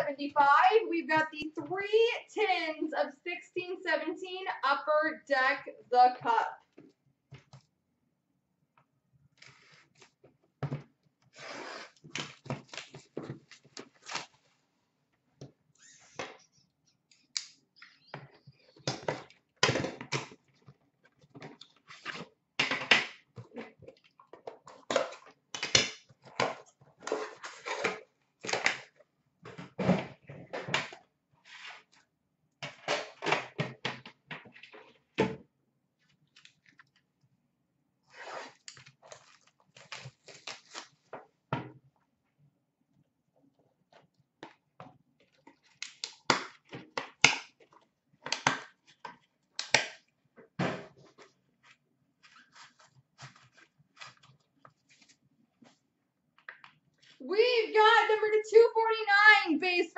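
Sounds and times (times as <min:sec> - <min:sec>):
cardboard packaging rustling: 0:38.6 - 0:41.1.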